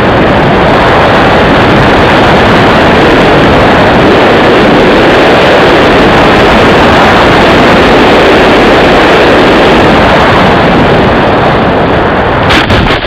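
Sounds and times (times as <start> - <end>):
rush of air: 0.0 - 13.0
sharp crack: 12.4 - 13.0.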